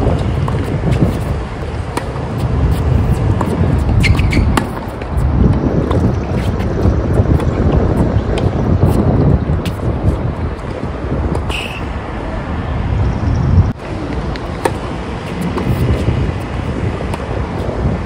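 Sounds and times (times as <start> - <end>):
wind buffeting microphone: 0.0 - 18.0
tennis racket hitting ball: 0.2 - 5.2, 14.4 - 16.2.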